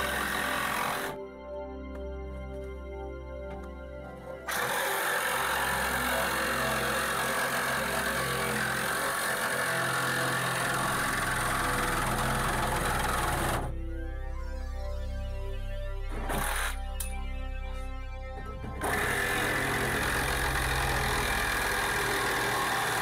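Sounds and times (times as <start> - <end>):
reciprocating saw cutting steel: 0.0 - 1.2, 4.5 - 13.7, 16.1 - 17.1, 18.8 - 23.0
background music: 0.0 - 23.0.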